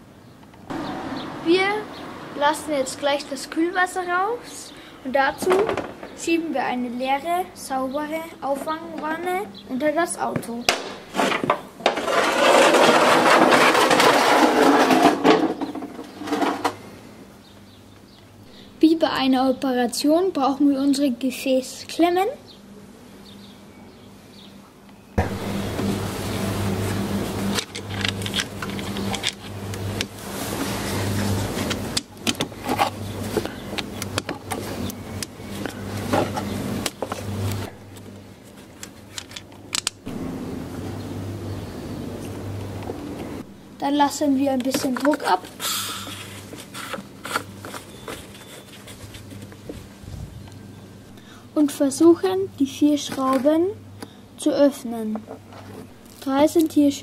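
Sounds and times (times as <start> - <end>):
steady low hum: 0.0 - 57.0
metal pan scraping on concrete: 11.0 - 16.8
gloved hands rustling: 44.6 - 50.4.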